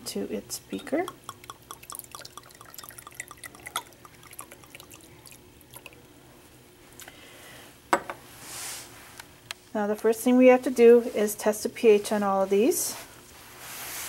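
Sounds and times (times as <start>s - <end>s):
liquid trickling into glass beaker: 1.0s - 6.0s.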